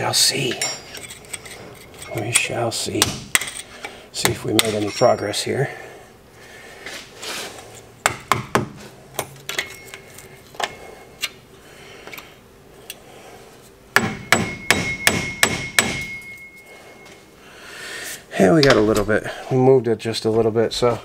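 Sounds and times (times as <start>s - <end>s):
steel tool tapping metal: 14.0s - 16.6s.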